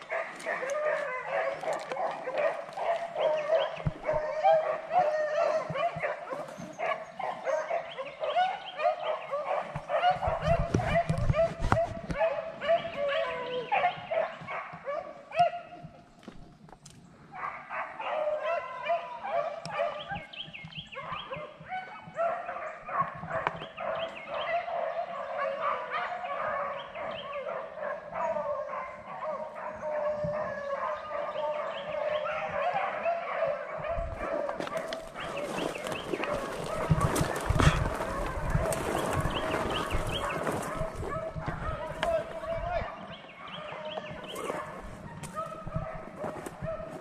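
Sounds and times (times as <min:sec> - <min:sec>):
dogs baying: 0:00.0 - 0:16.0, 0:17.3 - 0:47.0
brush rustling: 0:34.5 - 0:42.4.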